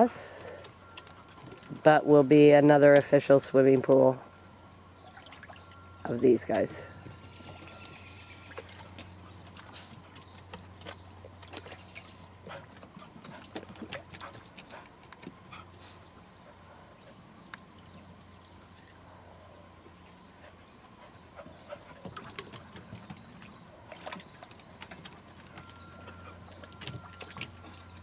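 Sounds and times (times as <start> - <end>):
steady low hum: 0.0 - 28.0
dogs splashing in water: 8.3 - 15.8, 21.6 - 28.0.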